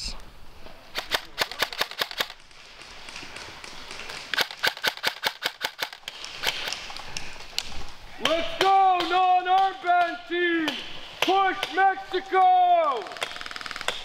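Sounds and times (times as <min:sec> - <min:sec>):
airsoft rifle snapping shots: 0:00.9 - 0:02.4, 0:04.3 - 0:06.8.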